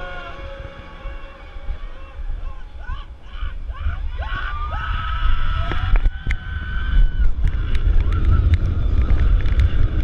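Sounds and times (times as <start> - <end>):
riders yelling: 0.0 - 7.2
long high scream: 0.0 - 7.4
wind on microphone: 0.0 - 10.0
roller coaster train running: 6.5 - 10.0.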